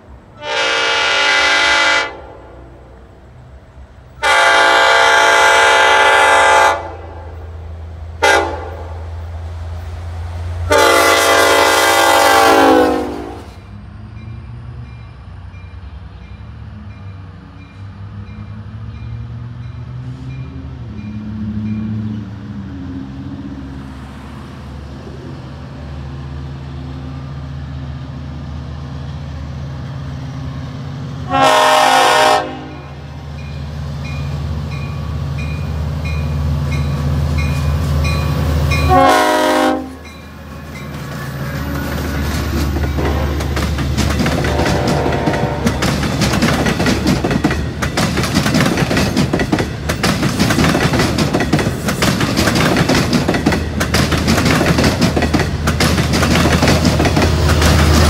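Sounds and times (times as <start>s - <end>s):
locomotive horn: 0.4s - 3.1s, 4.2s - 7.5s, 8.2s - 9.1s, 10.6s - 13.6s, 31.2s - 33.2s, 38.7s - 43.4s, 44.4s - 46.0s.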